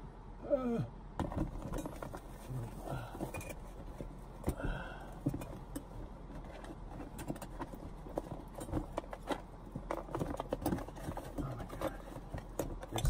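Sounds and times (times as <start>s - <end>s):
items knocking and clattering: 1.2s - 13.0s.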